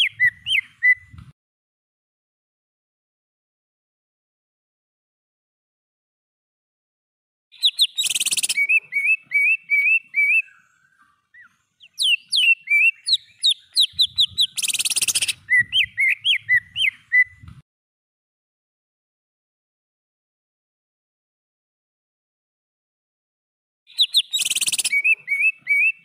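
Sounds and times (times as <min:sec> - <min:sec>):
bird whistling song: 0:00.0 - 0:01.3, 0:07.5 - 0:17.6, 0:23.9 - 0:26.0
harsh rattling bird call: 0:07.6 - 0:17.2, 0:23.9 - 0:26.0.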